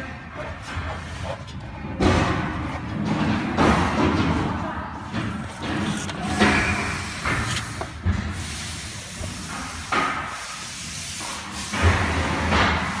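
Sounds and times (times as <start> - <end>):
blower airy hiss: 6.4 - 13.0.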